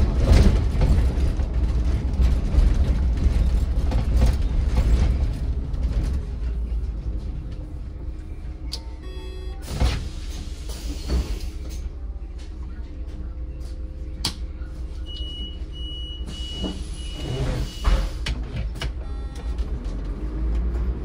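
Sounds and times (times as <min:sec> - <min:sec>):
bus body rattling and creaking: 0:00.0 - 0:21.0
bus engine and road rumble: 0:00.0 - 0:21.0
click: 0:08.7 - 0:08.9
short electronic beep: 0:08.9 - 0:09.7.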